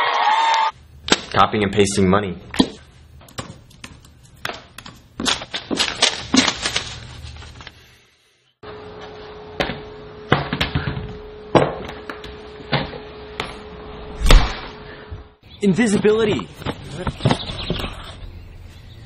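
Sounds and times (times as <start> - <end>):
steady hum: 8.6 - 15.4.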